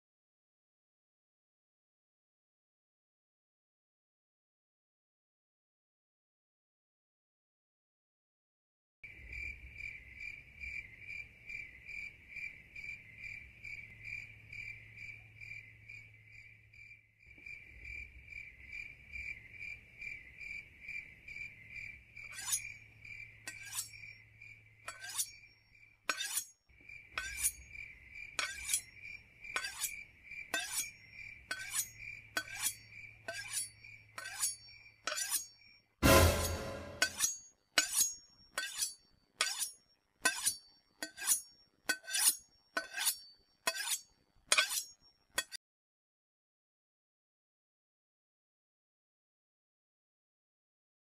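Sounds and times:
crickets chirping: 9.1 - 26.0, 26.7 - 35.9
loud clattering crash: 36.0 - 37.2.

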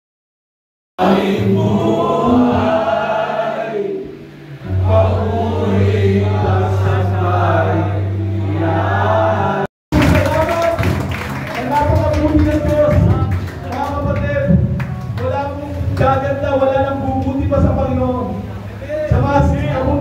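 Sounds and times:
men singing worship song: 1.0 - 10.2, 19.1 - 20.0
backing track with bass: 4.2 - 20.0.

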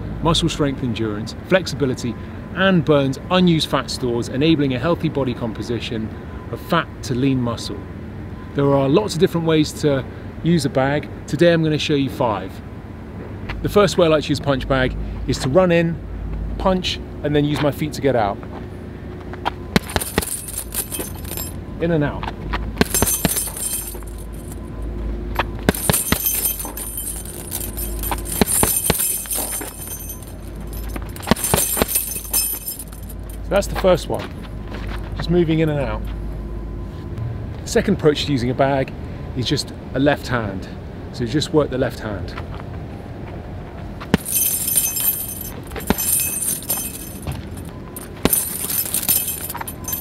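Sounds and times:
punches thudding on heavy bag: 19.8 - 21.5, 25.4 - 33.1
chain jangling: 19.8 - 21.6, 22.8 - 24.7, 25.4 - 33.5, 44.2 - 50.0.

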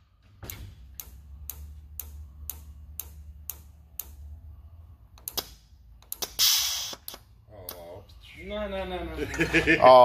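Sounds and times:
low hum: 0.0 - 8.5
steady ticking: 0.5 - 6.4
compressed air hiss: 6.2 - 7.2.

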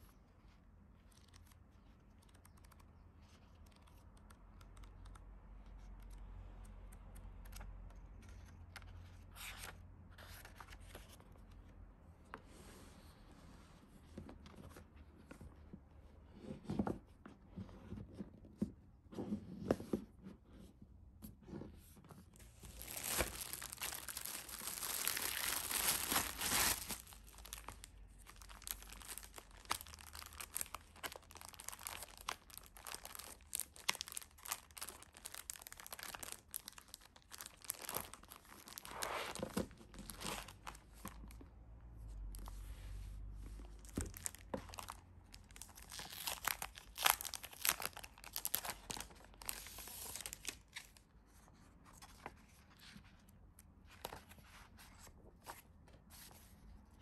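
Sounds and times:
paper rustling: 21.8 - 41.4
packaging tearing and crinkling: 22.7 - 39.5, 44.1 - 50.6.

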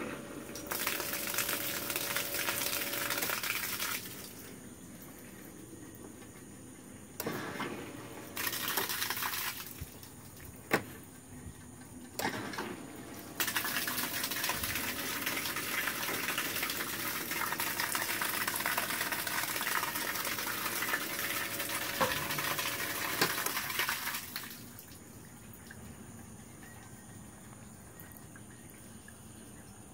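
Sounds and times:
bilge pump running: 0.0 - 5.3, 7.2 - 11.2, 12.1 - 24.7
water gushing out: 0.5 - 4.5, 7.9 - 10.2, 13.2 - 24.8.

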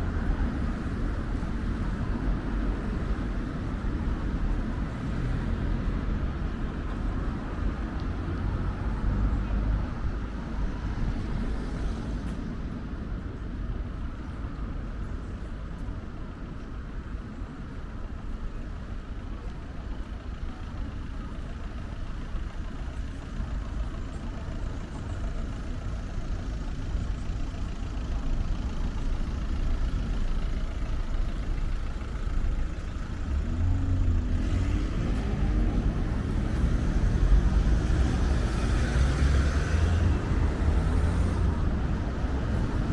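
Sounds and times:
cars passing on road: 0.0 - 42.9
engine pulling away: 22.1 - 42.9.

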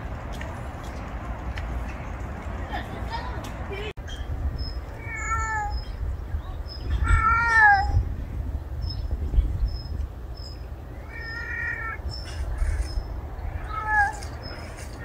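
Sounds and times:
cat meowing: 5.0 - 5.9, 6.9 - 8.0, 11.0 - 12.0, 13.5 - 14.4.

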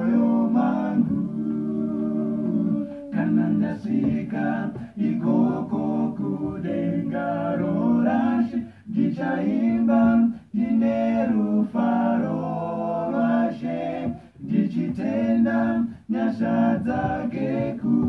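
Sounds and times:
male vocal group singing harmony: 0.0 - 18.0.

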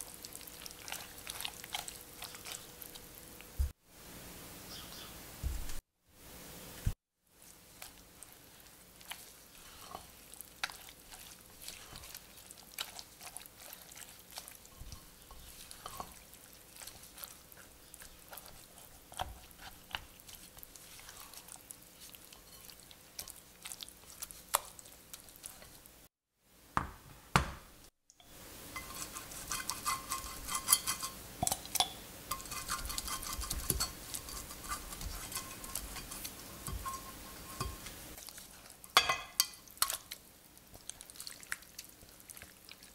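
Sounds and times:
batter squelching: 0.0 - 3.8, 7.3 - 26.1, 28.8 - 42.9
spatula scraping glass bowl: 13.2 - 16.2, 28.8 - 31.2, 32.3 - 38.0.

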